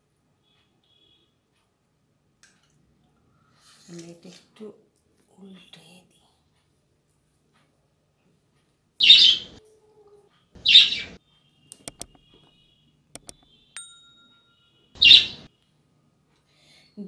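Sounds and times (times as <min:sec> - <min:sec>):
mouse clicks: 0:11.7 - 0:12.2, 0:13.2 - 0:13.4
bell ding: 0:13.8 - 0:14.8.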